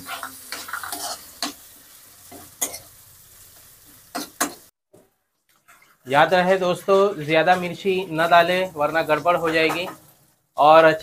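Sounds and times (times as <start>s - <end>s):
spatula scraping a pan: 0.0s - 3.0s, 5.5s - 8.6s
tomatoes sizzling in hot oil: 0.0s - 4.8s, 5.5s - 11.0s.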